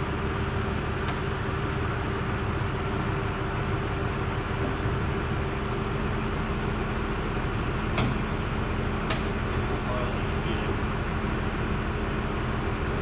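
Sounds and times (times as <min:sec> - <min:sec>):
machine noise with low hum: 0:00.0 - 0:13.0.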